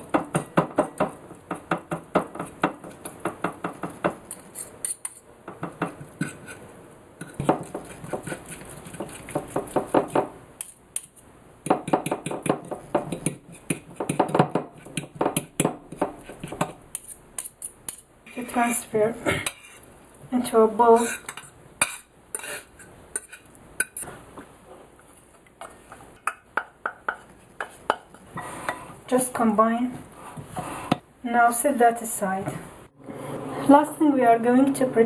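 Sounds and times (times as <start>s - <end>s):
forks scraping a plate: 6.2s - 6.6s, 20.9s - 24.1s.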